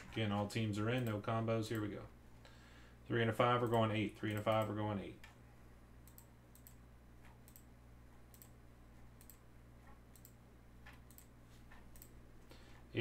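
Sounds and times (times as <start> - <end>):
low electrical hum: 0.0 - 13.0
faint mouse clicks: 6.0 - 7.7, 8.3 - 8.6, 9.2 - 12.2.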